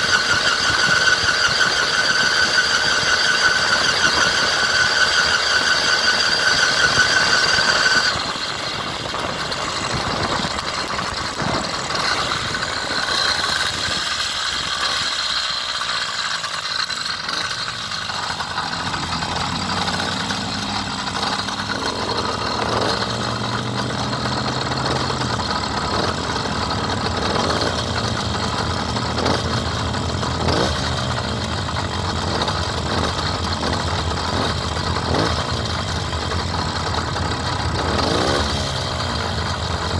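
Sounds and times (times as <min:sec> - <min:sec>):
high whine: 0:00.0 - 0:30.4
engines idling: 0:00.0 - 0:39.9.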